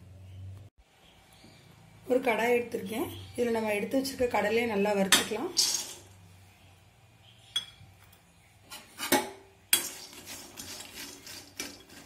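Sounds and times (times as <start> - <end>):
metal spoon scraping iron pan: 8.7 - 12.0.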